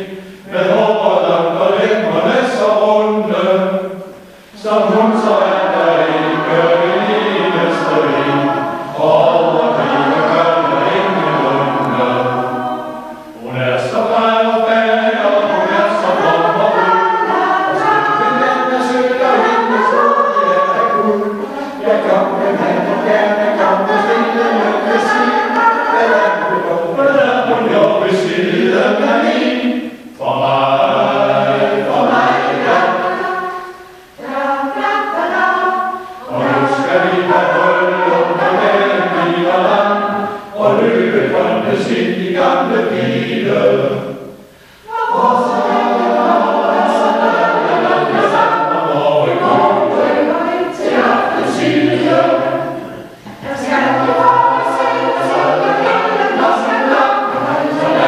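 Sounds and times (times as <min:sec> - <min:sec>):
mixed choir singing: 0:00.0 - 0:58.0.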